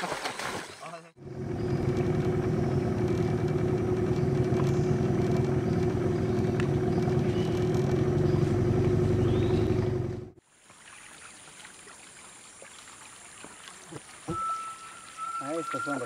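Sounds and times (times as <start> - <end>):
small boat engine running: 1.2 - 10.4.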